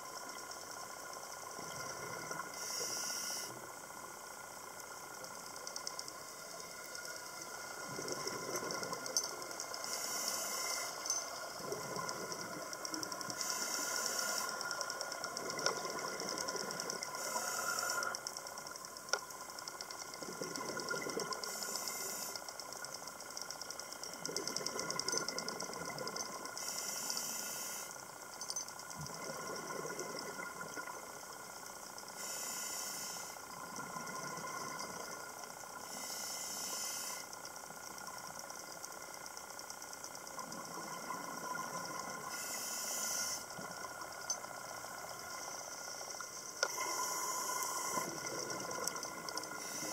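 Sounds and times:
faint steady whine: 0.0 - 49.9
regulator hiss on inhale: 2.3 - 4.6, 5.3 - 25.7, 26.5 - 28.3, 31.9 - 38.5, 41.6 - 44.4, 45.0 - 49.9
exhaled bubbles gurgling: 20.1 - 21.6, 29.0 - 31.2, 46.6 - 49.9.

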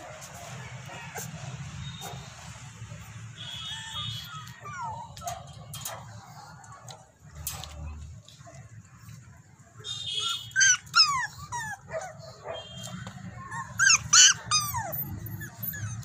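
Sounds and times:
puppies whimpering and yipping: 0.2 - 2.2, 3.7 - 6.5, 10.2 - 16.0.

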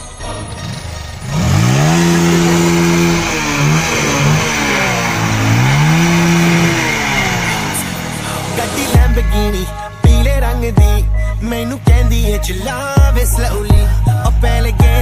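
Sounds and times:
motorcycle engine revving: 0.3 - 15.0.

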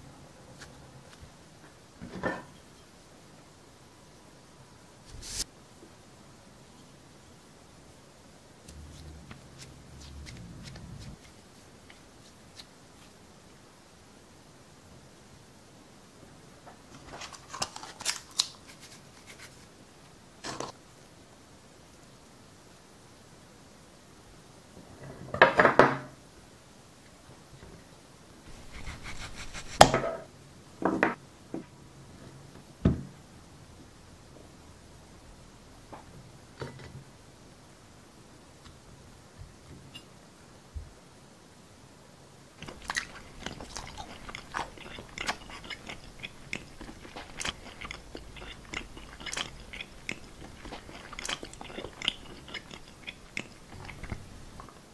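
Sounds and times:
knife scraping strokes: 28.5 - 29.9.

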